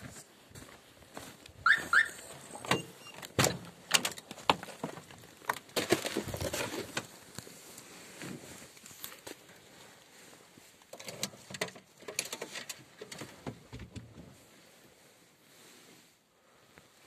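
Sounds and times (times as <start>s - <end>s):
car door squeaking: 1.7s - 3.5s
door knocks and clunks: 2.7s - 4.6s
rustle of someone climbing in: 3.2s - 17.0s.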